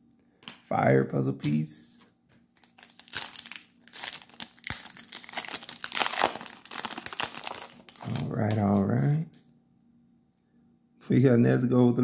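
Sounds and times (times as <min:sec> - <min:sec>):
foil wrapper tearing and crinkling: 0:02.5 - 0:08.8.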